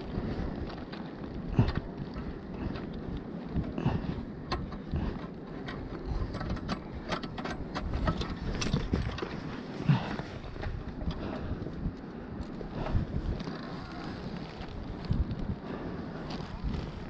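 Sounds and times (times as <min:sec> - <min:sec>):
metal ladder clinking and rattling: 0:05.6 - 0:09.6.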